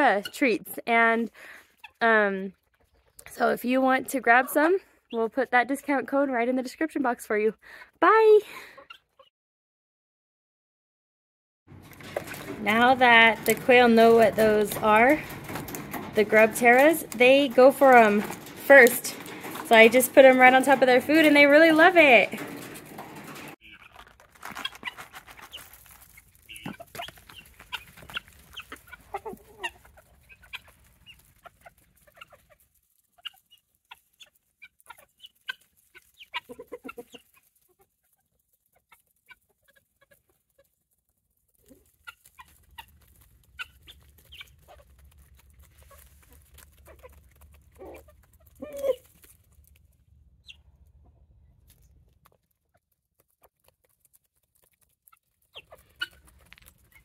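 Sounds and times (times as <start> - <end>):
chickens clucking: 8.6 - 9.3, 11.7 - 32.6, 33.2 - 38.2, 41.6 - 49.3, 55.4 - 57.0.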